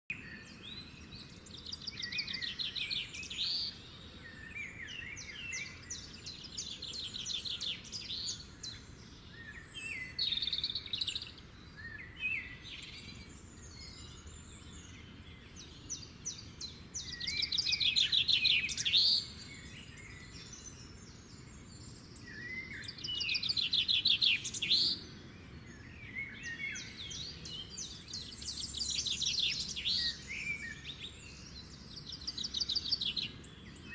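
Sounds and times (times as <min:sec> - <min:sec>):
songbird trilling: 0:00.9 - 0:33.9.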